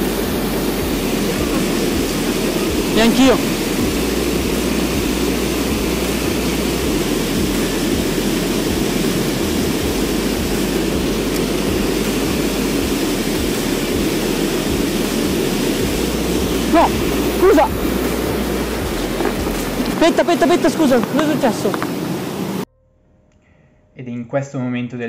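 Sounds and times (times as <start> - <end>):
waterfall pouring into pool: 0.0 - 22.6.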